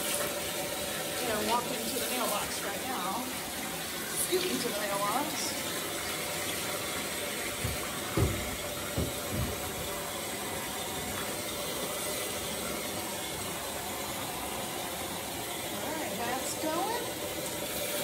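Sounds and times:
faucet pouring into bathtub: 0.0s - 18.0s
dull low thumps: 7.6s - 10.0s.

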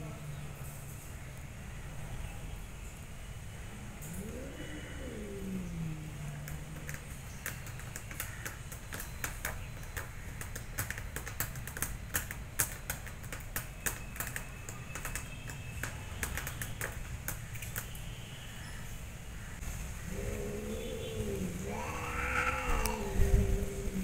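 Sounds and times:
cat claws clicking on tyre: 4.1s - 18.0s, 21.7s - 23.2s.

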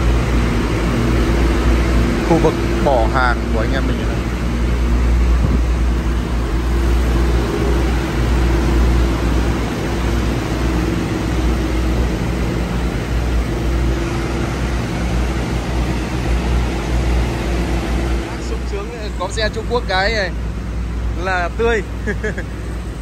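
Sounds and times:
diesel truck engine running: 0.0s - 23.0s.

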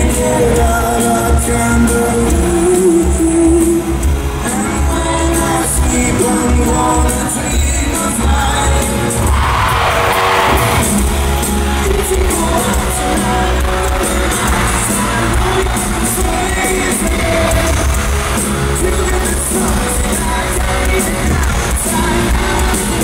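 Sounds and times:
live pop-rock band playing: 0.0s - 23.0s
male lead vocal: 0.0s - 23.0s
brief surge of noise: 9.2s - 11.5s.

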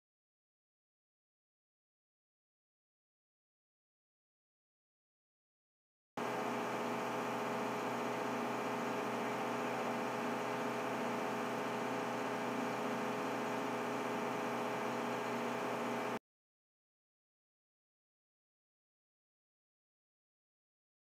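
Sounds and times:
machinery hum with held tones: 6.2s - 16.2s.

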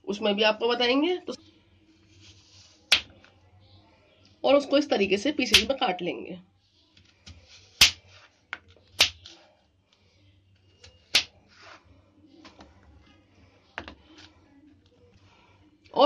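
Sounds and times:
soft handling sounds: 1.5s - 4.4s, 6.8s - 15.9s.

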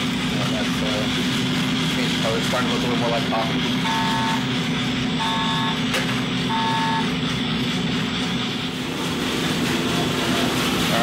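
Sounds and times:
coffee roaster drone: 0.0s - 11.0s
short electronic beeps: 3.8s - 4.5s, 5.2s - 5.8s, 6.5s - 7.1s.

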